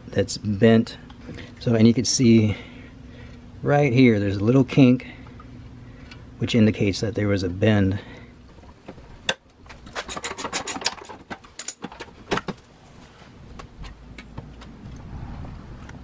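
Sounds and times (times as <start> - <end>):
low steady background noise: 0.0 - 16.0
car parts clicking and rattling: 9.7 - 12.6.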